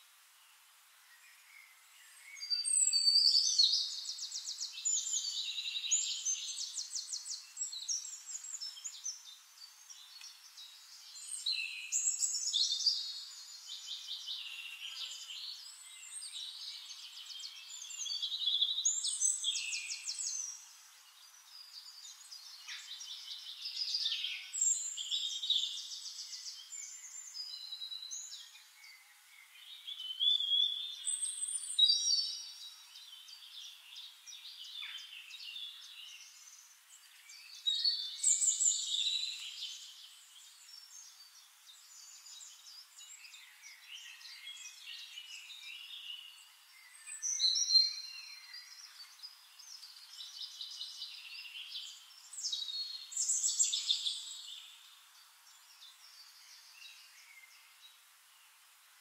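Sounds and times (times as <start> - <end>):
songbirds singing and chirping: 0.0 - 59.0.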